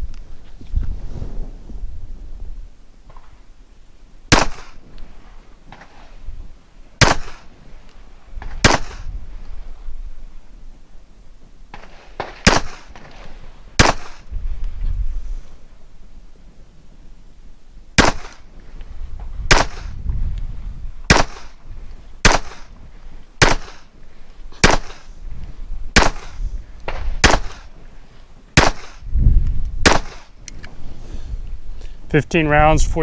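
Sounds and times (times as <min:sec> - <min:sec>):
pistol shots with echo: 0:04.3 - 0:04.8, 0:07.0 - 0:07.5, 0:08.6 - 0:09.1, 0:11.8 - 0:13.0, 0:13.8 - 0:14.3, 0:18.0 - 0:18.5, 0:19.5 - 0:19.9, 0:21.1 - 0:21.6, 0:22.2 - 0:22.7, 0:23.4 - 0:23.9, 0:24.6 - 0:25.1, 0:26.0 - 0:26.4, 0:27.2 - 0:27.7, 0:28.6 - 0:29.0, 0:29.8 - 0:30.3.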